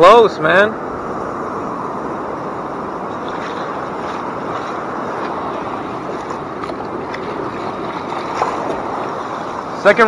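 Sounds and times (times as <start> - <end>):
wind on microphone: 0.0 - 9.9
breaking surf: 0.0 - 10.0
shallow water swirling around legs: 2.9 - 9.8.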